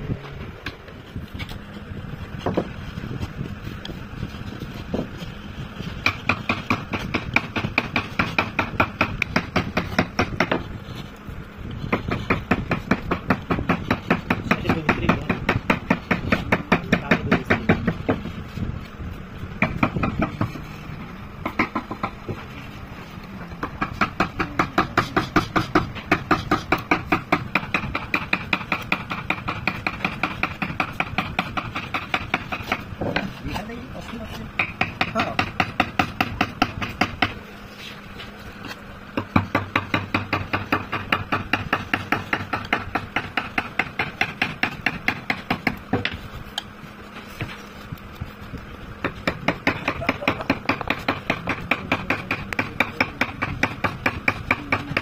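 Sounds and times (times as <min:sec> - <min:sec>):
chisel cutting into wood: 0:04.7 - 0:10.8, 0:23.6 - 0:37.4, 0:39.2 - 0:46.2.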